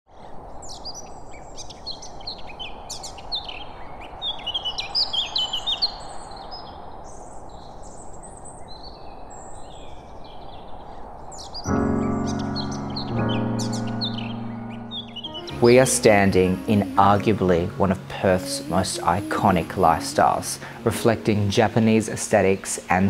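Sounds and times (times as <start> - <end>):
birds chirping and calling: 0.2 - 23.0
outdoor hiss: 15.3 - 23.0.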